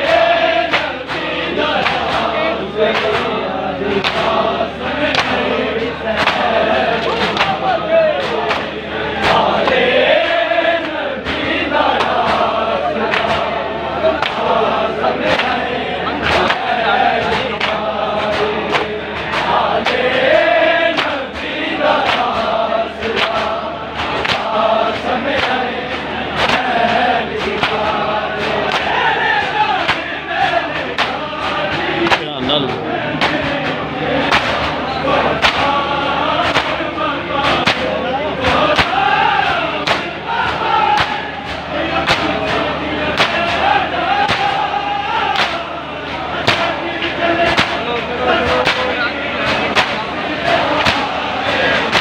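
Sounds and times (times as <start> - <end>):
men chanting in unison: 0.0 - 52.0
hands slapping bare chests: 4.0 - 4.3, 5.1 - 5.4, 21.0 - 22.5
chest beating slaps: 27.4 - 34.8, 50.8 - 51.2, 51.8 - 52.0.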